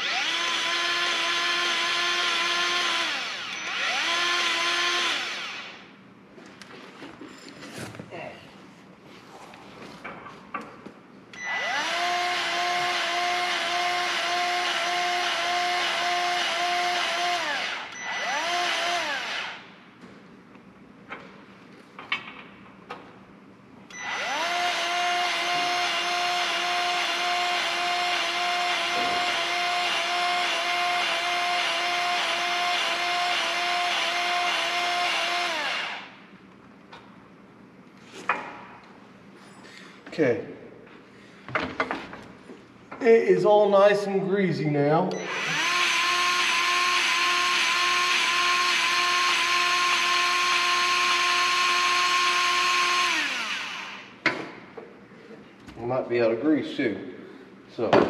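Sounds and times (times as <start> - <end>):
motorized grease gun whining: 0.0 - 5.8, 45.2 - 54.1.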